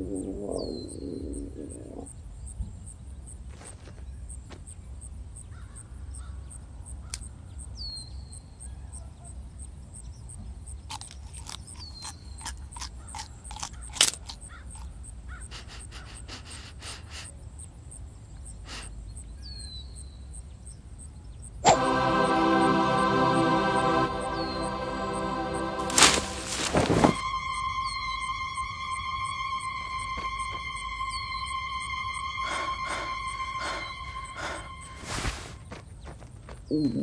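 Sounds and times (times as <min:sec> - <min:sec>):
short falling bird calls: 0:25.9 - 0:35.4.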